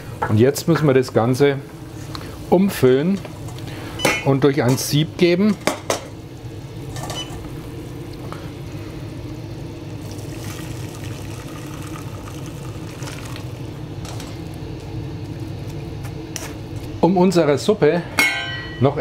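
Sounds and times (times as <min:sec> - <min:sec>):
steady low hum: 0:00.0 - 0:19.0
liquid pouring through a sieve: 0:10.0 - 0:13.8.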